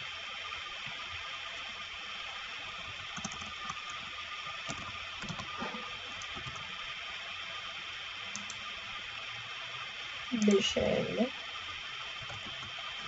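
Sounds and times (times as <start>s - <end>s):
steady hiss: 0.0s - 13.0s
keyboard keystrokes: 3.2s - 4.0s, 4.7s - 5.5s.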